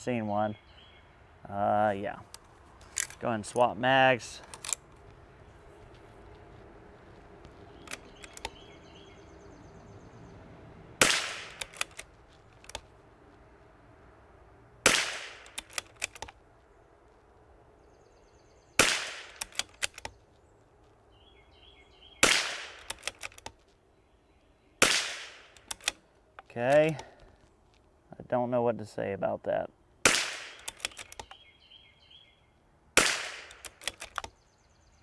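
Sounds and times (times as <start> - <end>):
rifle bolt clicking: 4.4 - 4.9, 7.8 - 8.6, 11.1 - 12.9, 15.0 - 16.4, 19.3 - 20.2, 22.5 - 23.6, 25.3 - 26.0, 30.4 - 31.4, 33.2 - 34.3
rifle shots cracking: 11.0 - 12.1, 14.8 - 16.2, 18.8 - 20.0, 22.2 - 23.4, 24.8 - 26.0, 30.0 - 31.1, 33.0 - 34.2.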